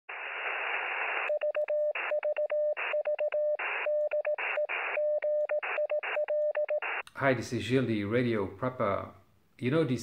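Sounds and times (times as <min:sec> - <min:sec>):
radio static hiss: 0:00.1 - 0:02.2, 0:03.6 - 0:06.2, 0:06.8 - 0:07.0
morse code beeping: 0:01.3 - 0:07.0.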